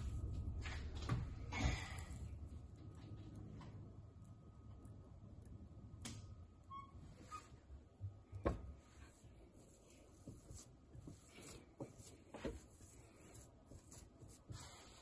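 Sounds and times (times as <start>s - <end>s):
hands rubbing damp bran: 8.9s - 15.0s.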